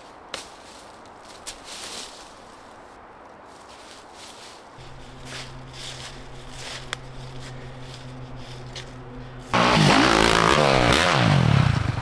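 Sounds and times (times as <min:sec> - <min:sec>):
dirt bike engine revving: 0:04.8 - 0:12.0
steady low hum: 0:04.8 - 0:12.0.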